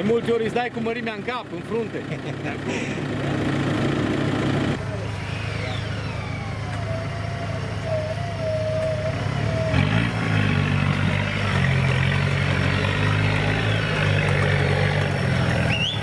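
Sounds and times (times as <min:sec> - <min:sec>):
off-road vehicle engine revving: 0:00.0 - 0:16.0.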